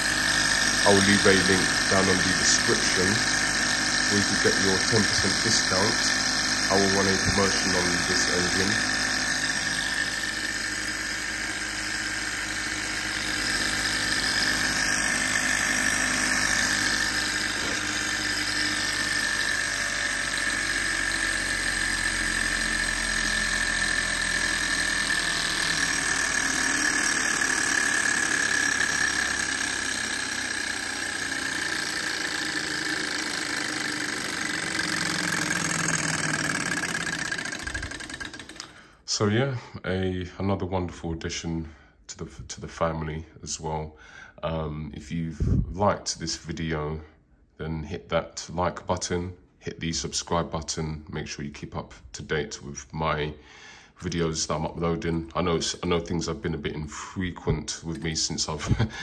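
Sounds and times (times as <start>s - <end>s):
stirling engine buzzing and whining: 0.0s - 38.8s.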